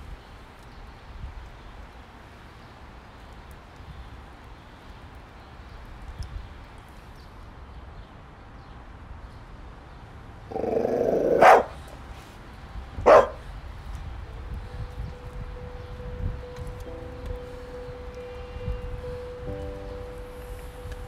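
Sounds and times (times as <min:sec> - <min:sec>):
dog growling: 0:10.5 - 0:11.8
dog barking: 0:10.6 - 0:11.8, 0:13.0 - 0:13.4.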